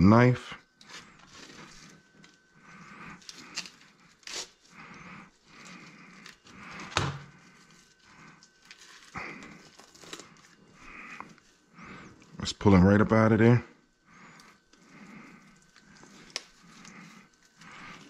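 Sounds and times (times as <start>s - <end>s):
knife scraping fish: 3.2s - 4.7s.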